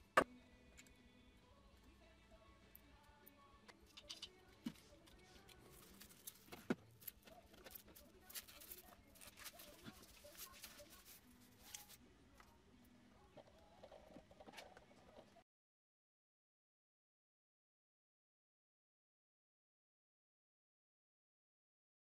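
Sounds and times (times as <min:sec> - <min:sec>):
wrapping sheet crinkling: 0:05.2 - 0:12.0.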